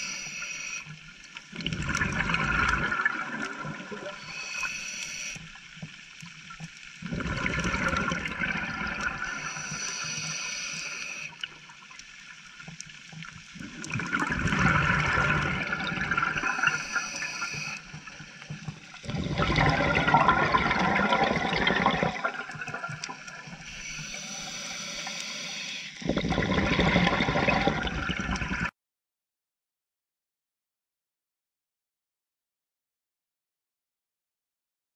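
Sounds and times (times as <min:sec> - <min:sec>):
faint hiss of inhalation: 0:00.0 - 0:01.0, 0:04.2 - 0:05.4, 0:09.2 - 0:11.4, 0:16.4 - 0:18.4, 0:23.7 - 0:26.0
bubbling regulator exhalations: 0:01.6 - 0:05.4, 0:07.0 - 0:11.4, 0:13.6 - 0:28.7.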